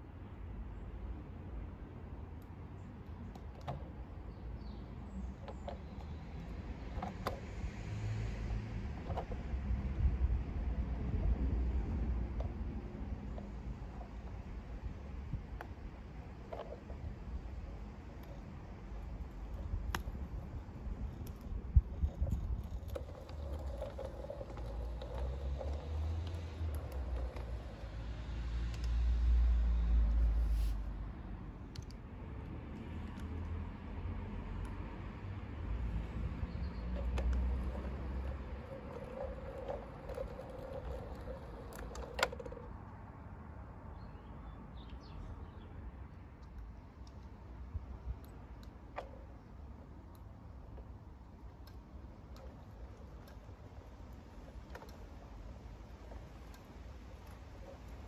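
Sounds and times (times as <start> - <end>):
clicks of wheels on track: 2.4 - 30.4, 34.5 - 43.0, 46.1 - 58.0.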